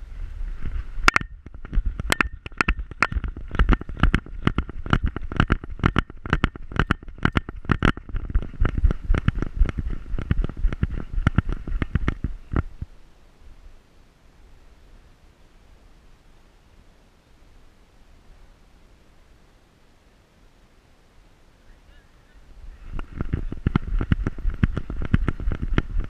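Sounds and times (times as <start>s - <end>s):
wind rumble on microphone: 0.0s - 13.8s, 21.8s - 26.0s
camera harness knocking: 1.1s - 12.7s, 23.0s - 26.0s.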